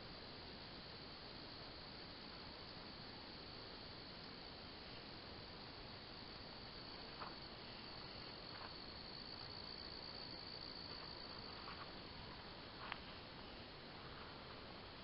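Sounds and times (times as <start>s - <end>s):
crickets trilling: 0.2s - 15.0s.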